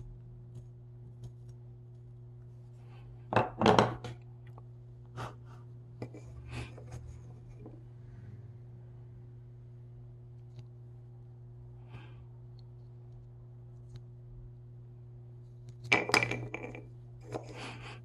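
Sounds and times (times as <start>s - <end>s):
wooden parts knocking on workbench: 3.3s - 4.2s.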